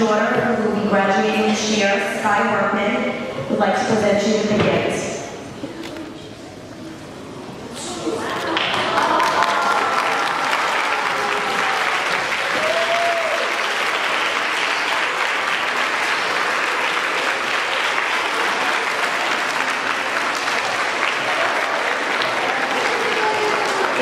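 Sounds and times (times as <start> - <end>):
audience applauding: 8.2 - 24.0.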